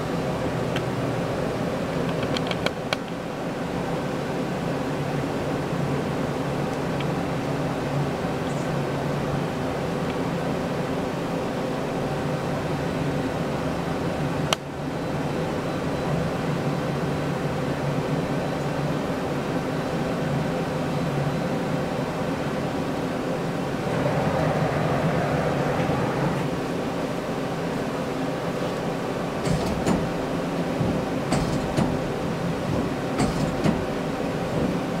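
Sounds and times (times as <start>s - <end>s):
lathe mechanical hum: 0.0s - 35.0s
machine humming: 23.5s - 27.2s.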